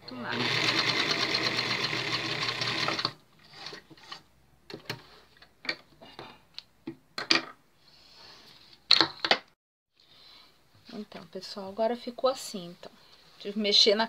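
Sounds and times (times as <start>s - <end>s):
sewing machine stitching: 0.1s - 3.8s.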